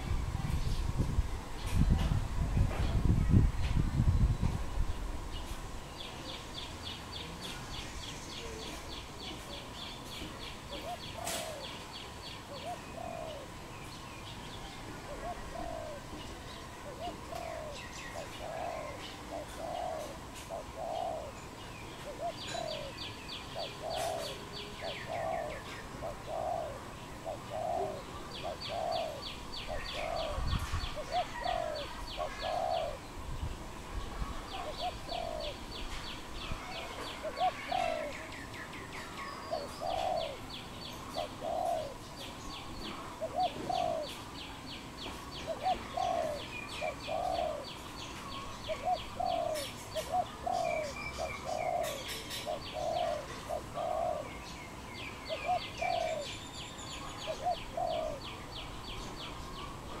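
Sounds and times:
doves cooing: 8.3s - 13.7s, 14.6s - 21.4s, 22.0s - 33.2s, 34.2s - 36.0s, 36.6s - 38.4s, 39.4s - 44.4s, 45.2s - 54.5s, 55.3s - 56.3s, 57.0s - 58.4s.

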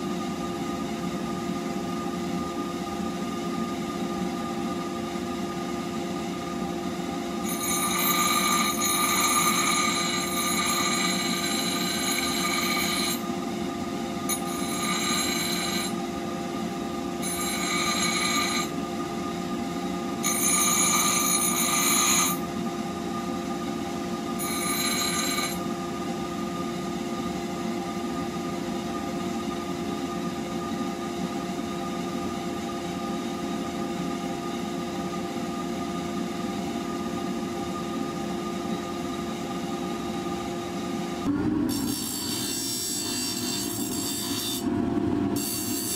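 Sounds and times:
bench grinder motor humming: 7.4s - 13.3s, 14.3s - 16.0s, 17.2s - 18.7s
high-pitched ringing grind of steel: 7.4s - 13.5s, 14.2s - 16.1s, 17.2s - 19.0s, 20.2s - 23.3s, 24.1s - 25.8s, 41.7s - 44.7s, 45.4s - 45.9s.

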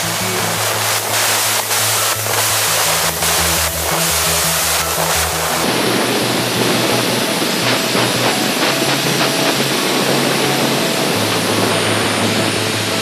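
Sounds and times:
electronic dance music: 0.0s - 13.0s.

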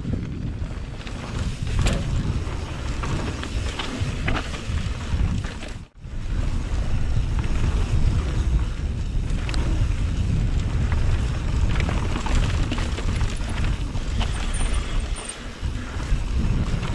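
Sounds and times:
tyre and trail noise: 0.0s - 16.9s
wind buffeting microphone: 0.0s - 16.9s
clicks and knocks from rocks: 11.7s - 15.4s.

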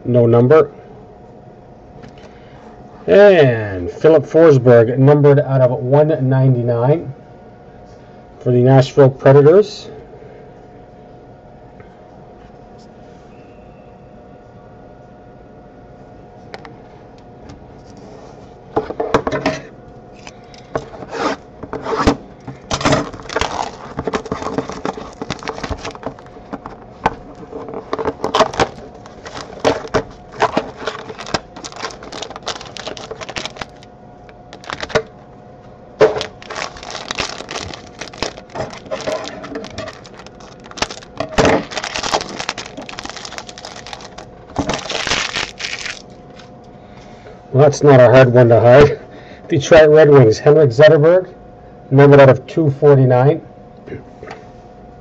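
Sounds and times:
faint steady hum: 0.0s - 55.0s
foil pack crinkling: 21.7s - 35.2s, 36.0s - 46.5s.

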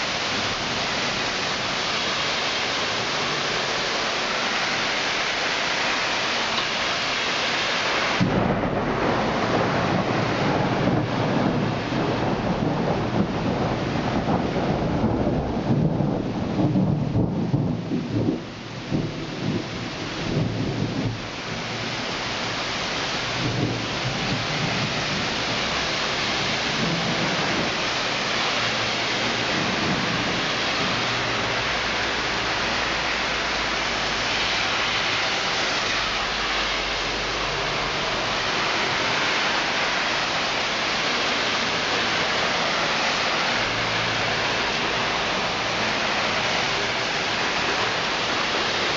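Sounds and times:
heavy rain: 0.0s - 48.9s
thunder rumbling: 7.8s - 35.6s.

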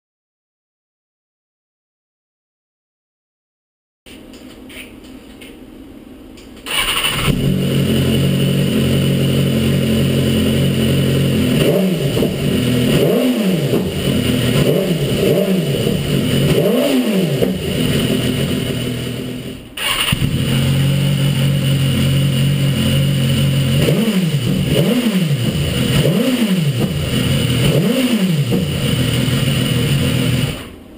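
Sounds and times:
motorcycle engine idling and revving: 6.7s - 30.9s.

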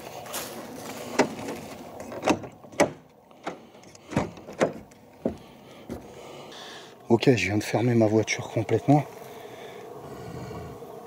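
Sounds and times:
sharp knocks and clunks: 1.1s - 6.1s.

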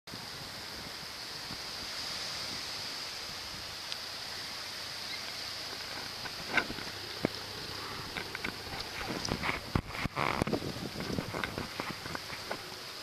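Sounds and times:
wind: 0.0s - 13.0s
gentle surf: 0.1s - 13.0s.

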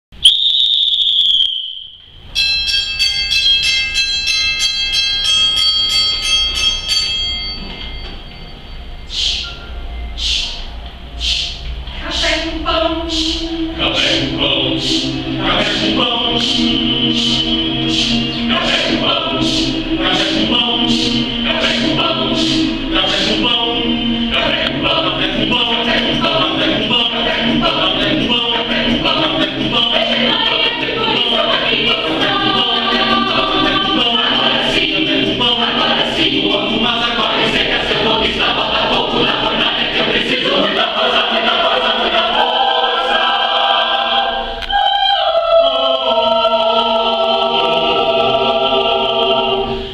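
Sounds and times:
shrill whistle: 0.2s - 2.2s
mixed choir singing a cappella: 9.1s - 49.9s.

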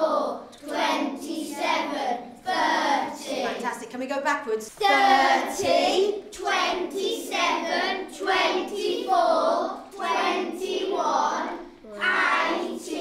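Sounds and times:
children chanting in unison: 0.0s - 3.6s, 4.8s - 13.0s.

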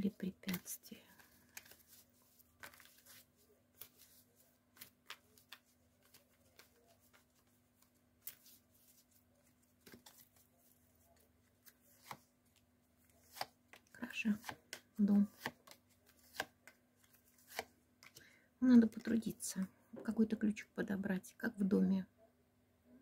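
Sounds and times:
cards rustling and clicking: 0.1s - 18.2s.

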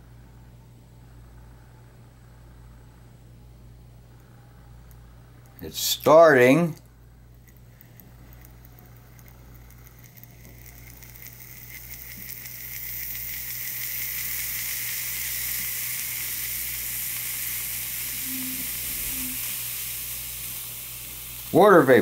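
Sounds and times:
hiss of escaping steam: 12.1s - 22.0s.

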